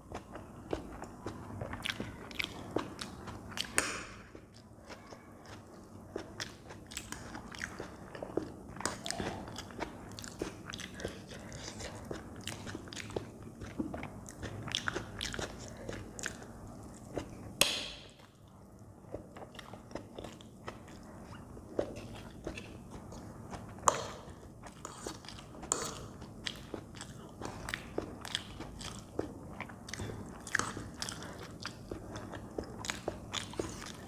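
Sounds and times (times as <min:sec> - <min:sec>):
wet chewing and lip-smacking: 0:00.0 - 0:34.0.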